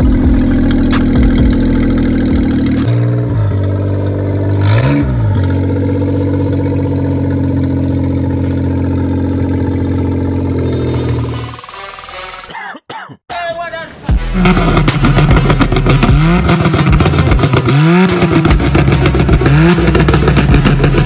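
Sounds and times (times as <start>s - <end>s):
engine idling and revving: 0.0s - 12.6s, 14.1s - 21.0s.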